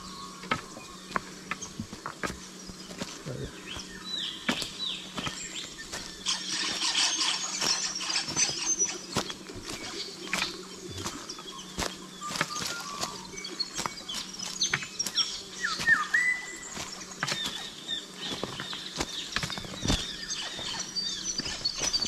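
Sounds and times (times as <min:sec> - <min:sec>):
birds calling: 0:00.0 - 0:22.0
footsteps on rocks and leaves: 0:00.0 - 0:22.0
whistled bird call: 0:12.2 - 0:13.6, 0:15.6 - 0:16.8.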